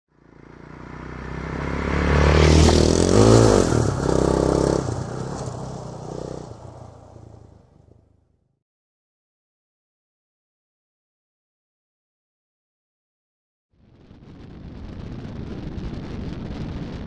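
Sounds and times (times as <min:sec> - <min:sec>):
motorcycle engine revving: 0:00.2 - 0:07.7.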